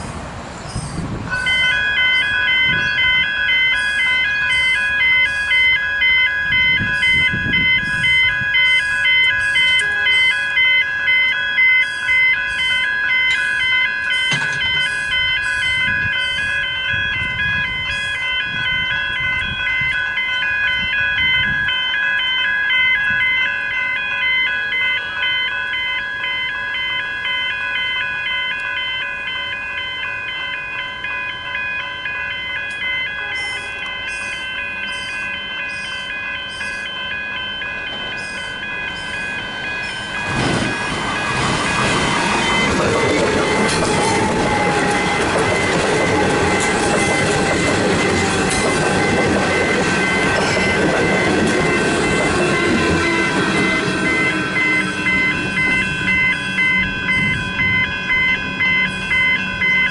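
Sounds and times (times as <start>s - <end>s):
level-crossing bells ringing: 1.3s - 59.9s.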